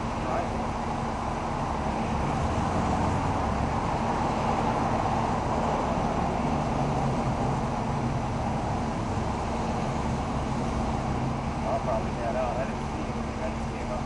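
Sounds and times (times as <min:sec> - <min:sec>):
road traffic with engine hum: 0:00.0 - 0:14.0.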